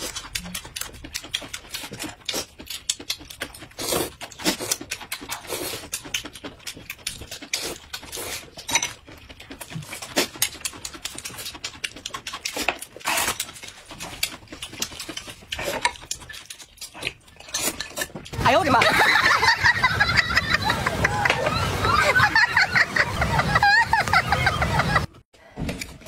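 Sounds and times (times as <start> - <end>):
chewing and mouth clicks: 0.0 - 18.4.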